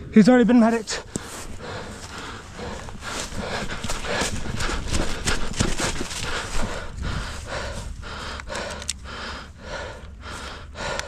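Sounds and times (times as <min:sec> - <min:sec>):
person breathing heavily: 0:00.9 - 0:11.0
sharp clicks: 0:08.3 - 0:09.1.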